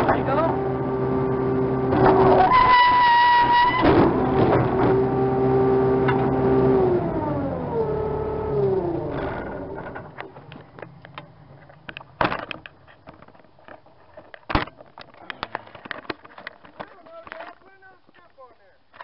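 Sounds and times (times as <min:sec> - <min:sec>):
diesel engine running: 0:00.0 - 0:12.2.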